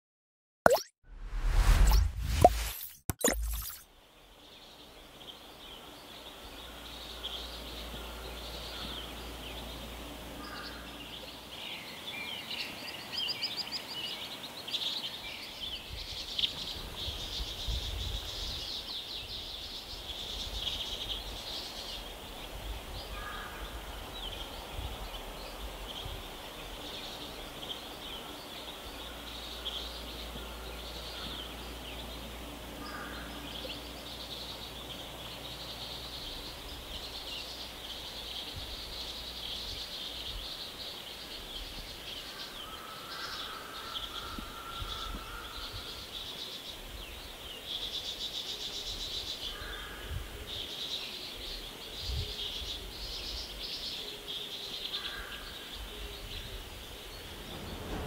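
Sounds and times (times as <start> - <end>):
low rumble: 1.1 - 2.7
steady hiss: 16.7 - 58.0.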